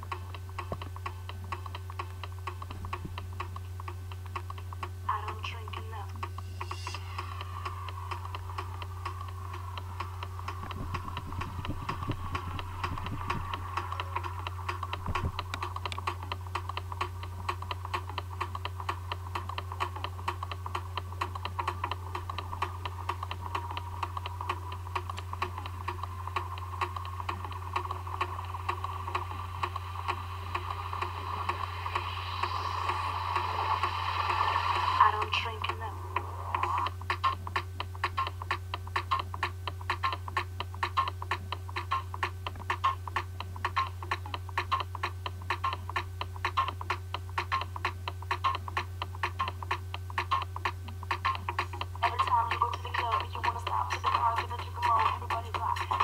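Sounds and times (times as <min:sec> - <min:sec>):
steady low hum: 0:00.0 - 0:56.0
rapid clicking: 0:07.2 - 0:35.8
rapid even clicking: 0:07.6 - 0:31.7, 0:36.5 - 0:56.0.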